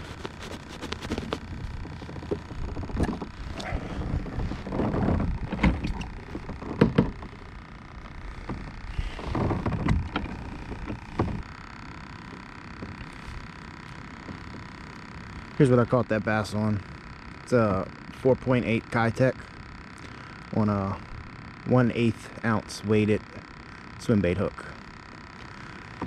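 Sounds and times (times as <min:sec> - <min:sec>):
gear knocking on plastic hull: 0:00.0 - 0:11.5.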